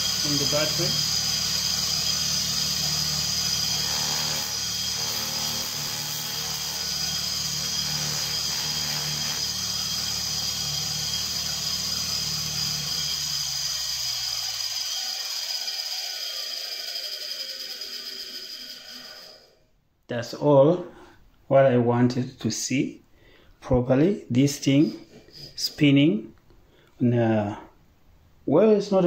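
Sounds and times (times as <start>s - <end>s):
small motor whining: 0.0s - 19.6s.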